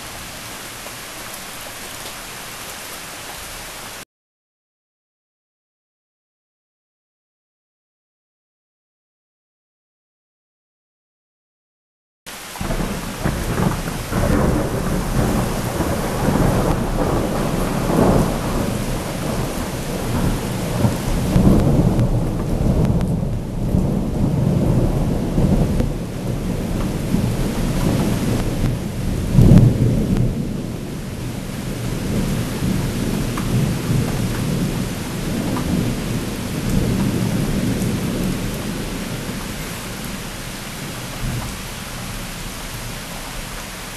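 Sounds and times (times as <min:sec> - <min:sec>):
rain hissing: 0:00.0 - 0:04.0, 0:12.3 - 0:43.9
thunder rumbling: 0:12.5 - 0:42.9.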